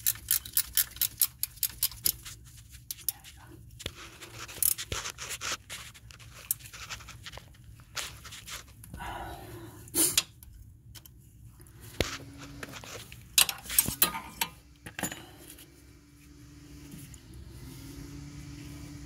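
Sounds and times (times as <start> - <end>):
metal tools clinking on metal: 13.4 - 15.6.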